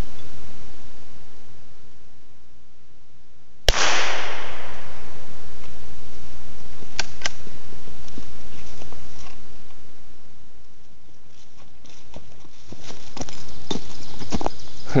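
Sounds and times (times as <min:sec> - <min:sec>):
rifle shot: 0:03.7 - 0:05.7.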